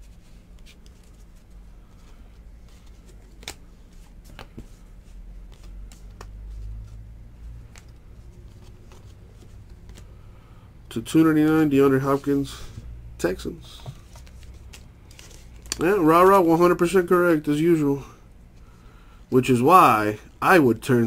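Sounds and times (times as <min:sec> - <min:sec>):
steady low hum: 0:00.0 - 0:21.0
cards rustling and clicking: 0:00.4 - 0:10.2, 0:13.8 - 0:17.0.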